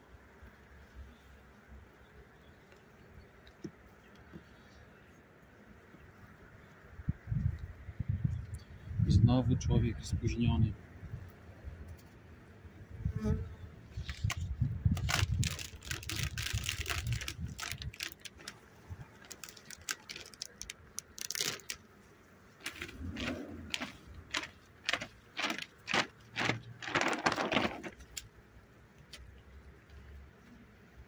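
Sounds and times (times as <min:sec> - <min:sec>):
plastic foil crinkling: 0:14.1 - 0:21.8, 0:22.6 - 0:28.2.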